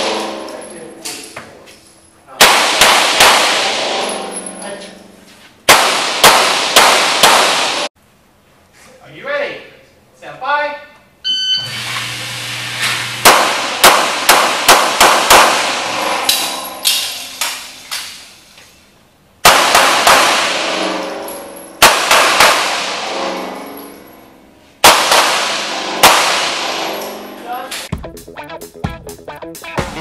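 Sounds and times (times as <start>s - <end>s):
handgun shots echoing indoors: 2.3s - 4.5s, 5.6s - 7.9s, 13.2s - 18.3s, 19.4s - 27.9s
electronic shot timer beep: 11.3s - 11.7s.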